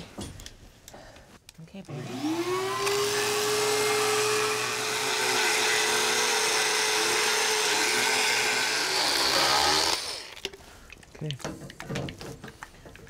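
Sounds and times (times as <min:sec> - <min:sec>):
dental float whining and grinding: 0:01.9 - 0:10.4.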